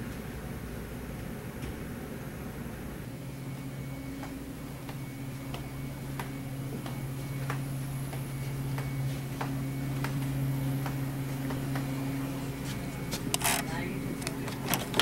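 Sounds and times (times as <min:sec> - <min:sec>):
steady low hum: 0:00.0 - 0:15.0
footsteps on carpet: 0:03.5 - 0:13.3.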